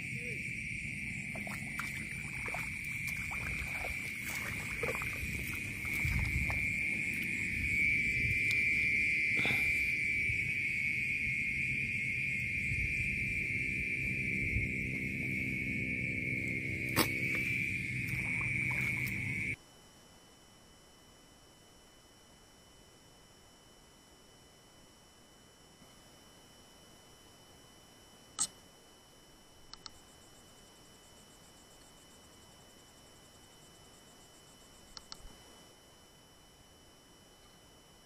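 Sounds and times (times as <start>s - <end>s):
insects and frogs chorus: 0.0s - 19.6s
sharp click: 28.4s - 28.6s, 35.0s - 35.3s.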